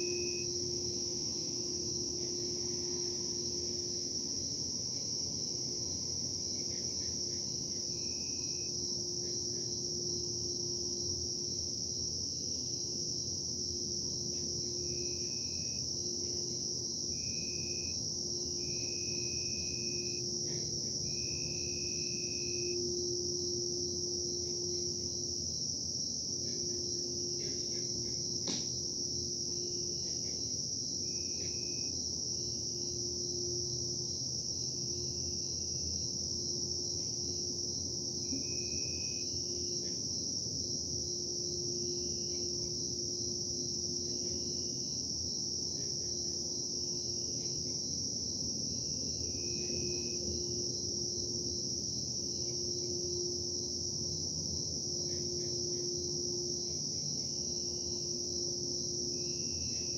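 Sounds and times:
cricket chorus: 0.0s - 59.9s.

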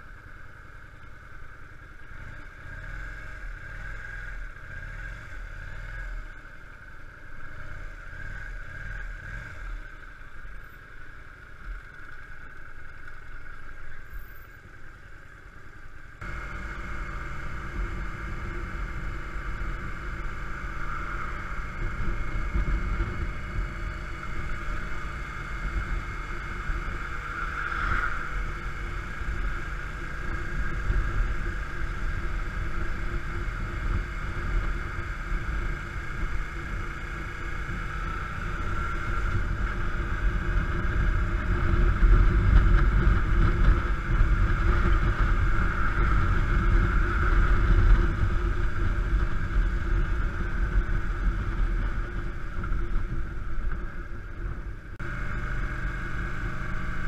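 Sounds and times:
motorcycle engine running: 0.0s - 57.0s
wind noise: 37.4s - 57.0s.

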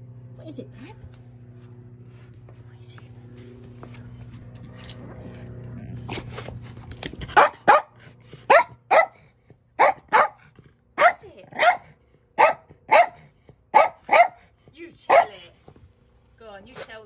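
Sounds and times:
dog barking sharply: 7.4s - 9.2s, 9.8s - 14.5s, 15.1s - 15.4s.

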